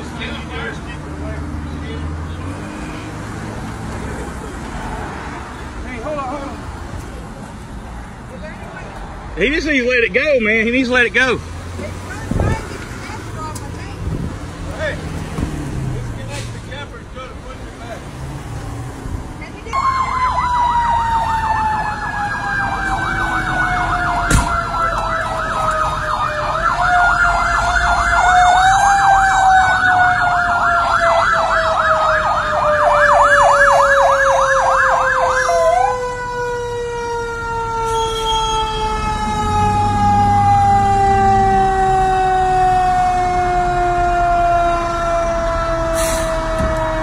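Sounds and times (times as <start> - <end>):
fire engine siren yelp: 19.7 - 47.0
long siren tone falling in pitch: 19.8 - 47.0.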